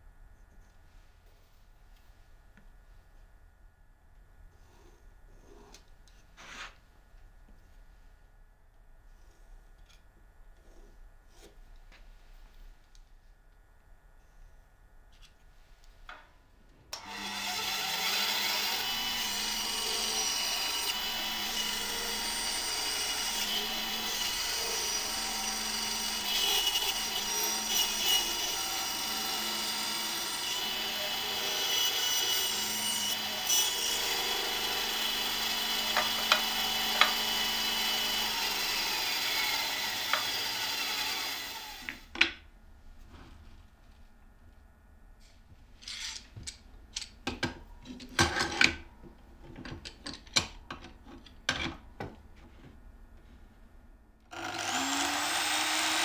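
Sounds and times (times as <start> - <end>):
band saw cutting wood: 17.0 - 42.0, 54.3 - 56.0.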